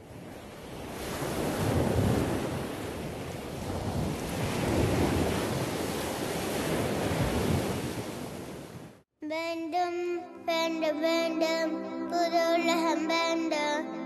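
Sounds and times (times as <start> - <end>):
sea surf washing up a beach: 0.0 - 9.0.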